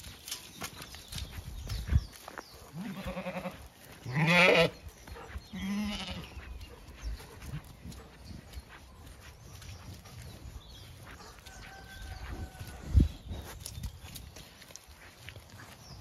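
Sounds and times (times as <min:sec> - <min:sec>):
sheep bleating: 0:02.8 - 0:04.8, 0:05.6 - 0:06.3.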